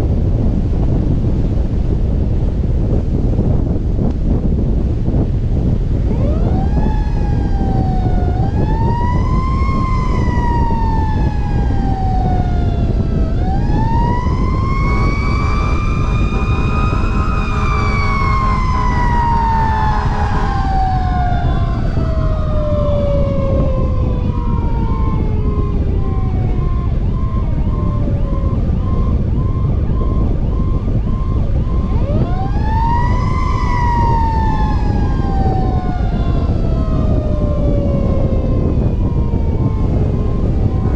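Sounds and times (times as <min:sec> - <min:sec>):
wind rumble on microphone: 0:00.0 - 0:40.9
fire truck siren: 0:05.6 - 0:40.9
multi-tone horn blast: 0:14.9 - 0:21.6.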